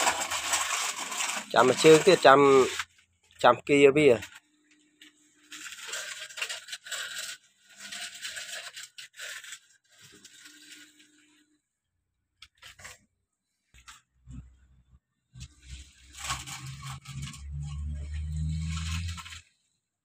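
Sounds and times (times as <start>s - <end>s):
sand scraping and pouring: 0.0s - 2.9s, 5.3s - 11.4s, 15.4s - 19.6s.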